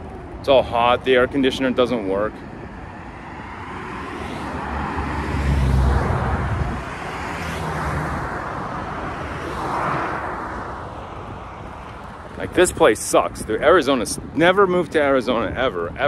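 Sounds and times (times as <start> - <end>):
steady traffic roar: 0.0 - 16.0
vehicle driving past: 3.1 - 11.0.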